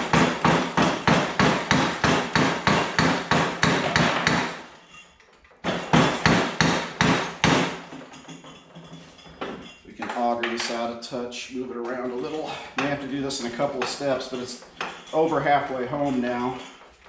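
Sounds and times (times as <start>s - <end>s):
sledgehammer striking metal: 0.0s - 5.0s, 5.6s - 8.0s.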